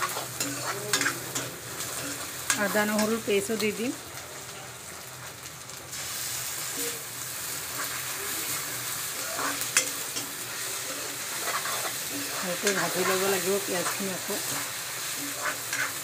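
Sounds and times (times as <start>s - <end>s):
metal spatula scraping pan: 0.0s - 3.2s, 9.2s - 16.0s
onions sizzling in hot oil: 0.0s - 16.0s.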